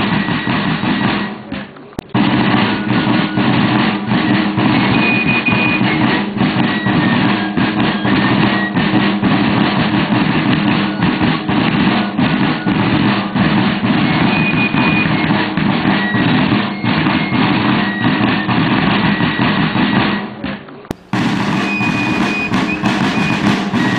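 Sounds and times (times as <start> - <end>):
marching drum beat: 2.2 - 16.0, 20.9 - 23.9
high piping notes: 20.9 - 23.9.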